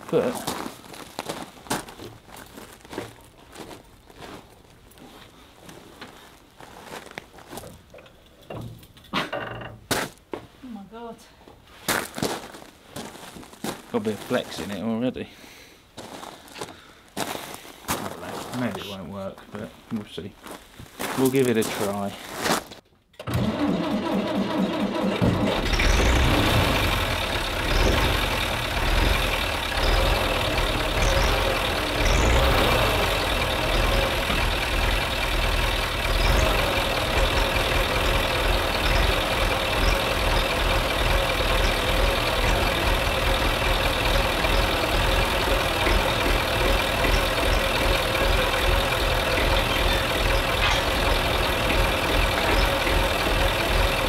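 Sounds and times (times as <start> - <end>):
tractor engine idling: 23.3 - 54.0.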